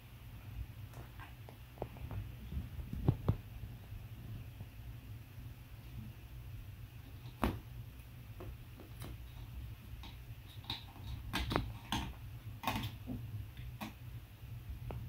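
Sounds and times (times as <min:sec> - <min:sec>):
steady low hum: 0:00.0 - 0:15.0
cat claws scratching carpet and wood: 0:08.7 - 0:14.0.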